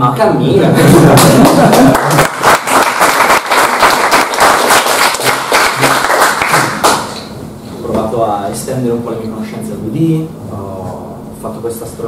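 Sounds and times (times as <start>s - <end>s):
audience applauding: 0.9s - 7.3s.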